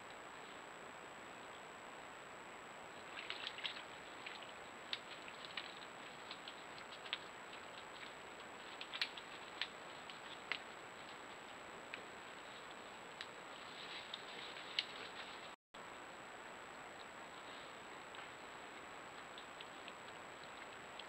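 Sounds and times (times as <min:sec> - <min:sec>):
faint high electronic whine: 0:00.0 - 0:21.0
microphone hiss: 0:00.0 - 0:21.0
leaves and twigs crackling: 0:02.8 - 0:15.6.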